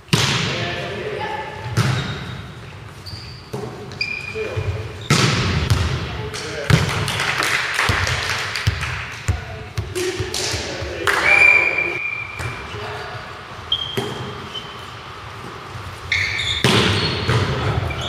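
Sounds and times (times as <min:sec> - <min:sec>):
volleyball struck with slaps: 0:00.1 - 0:00.5, 0:01.7 - 0:02.2, 0:05.1 - 0:07.2, 0:16.6 - 0:17.7
shoes squeaking on court floor: 0:01.4 - 0:05.8, 0:11.3 - 0:18.0
players calling out: 0:09.2 - 0:15.0.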